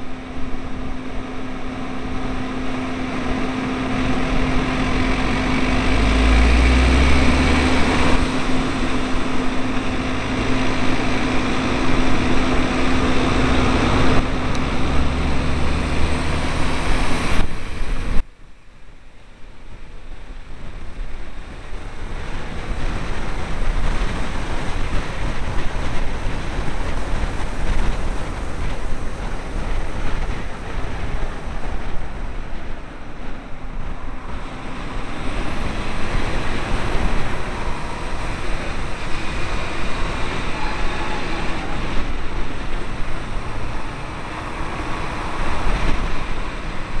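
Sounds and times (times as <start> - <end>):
wind buffeting microphone: 0.0 - 18.3, 19.3 - 47.0
road and tyre noise: 0.0 - 47.0.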